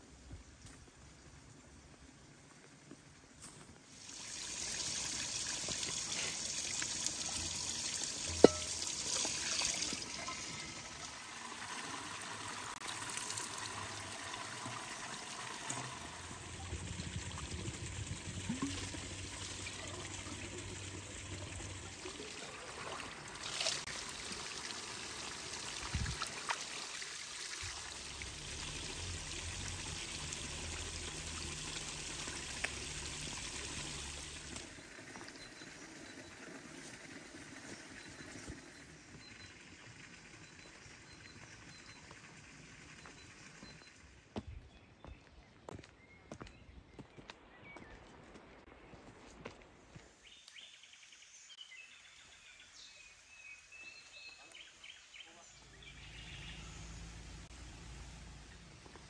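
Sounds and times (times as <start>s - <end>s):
water running and trickling: 3.8s - 43.8s.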